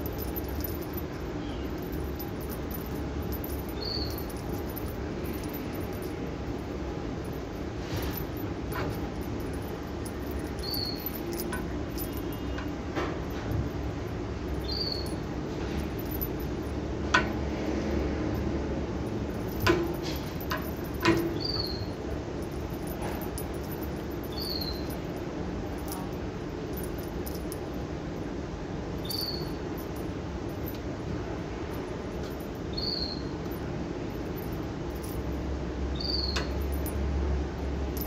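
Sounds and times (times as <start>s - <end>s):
toy bell clicking and knocking: 0.0s - 27.7s, 31.7s - 38.0s
background hum: 0.0s - 38.0s
high falling chirp: 3.6s - 4.6s, 10.4s - 11.4s, 14.6s - 15.3s, 24.3s - 25.0s, 29.0s - 29.6s, 32.7s - 33.4s.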